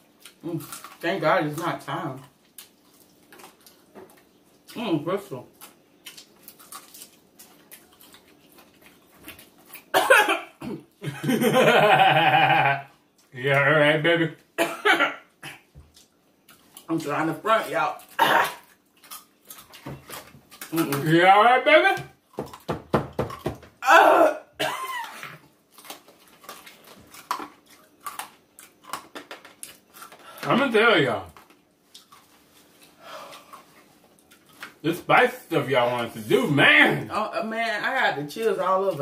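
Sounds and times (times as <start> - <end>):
person coughing: 10.0 - 10.9, 14.6 - 15.7, 18.2 - 18.6, 23.8 - 25.3
person moaning: 23.8 - 24.5.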